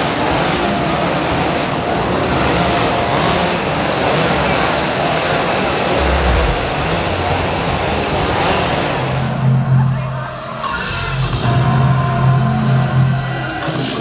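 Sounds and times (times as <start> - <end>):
chainsaw engines running: 0.0 - 9.5.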